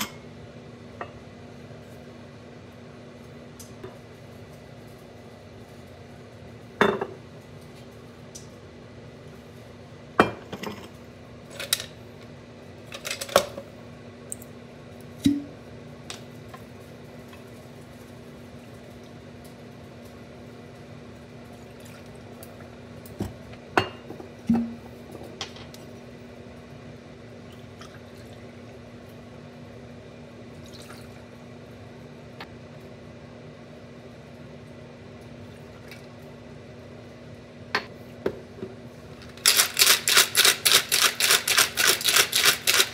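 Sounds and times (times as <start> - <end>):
liquid pouring: 30.6 - 31.2.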